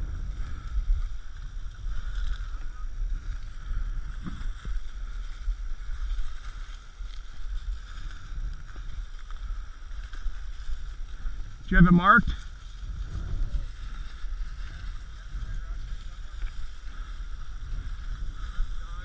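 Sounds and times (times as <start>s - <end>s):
microphone handling noise: 0.0s - 6.4s
dry grass rustling: 0.0s - 19.0s
wind rumble: 0.0s - 19.0s.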